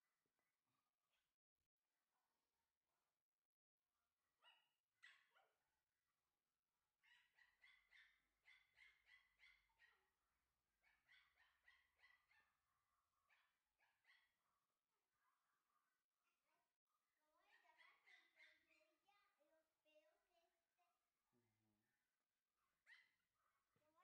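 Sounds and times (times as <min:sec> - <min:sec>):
puppy yapping: 0:04.4 - 0:05.4.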